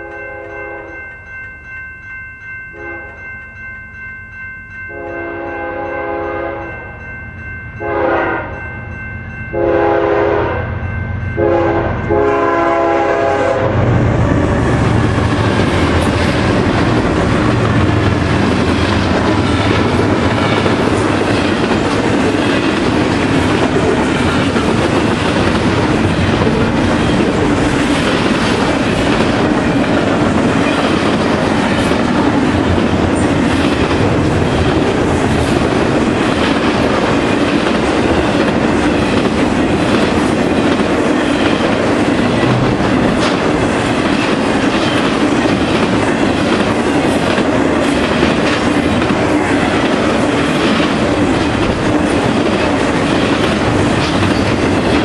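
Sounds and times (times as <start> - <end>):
freight train wheels rumbling: 3.0 - 55.0
wheels clicking over rail joints: 14.8 - 55.0.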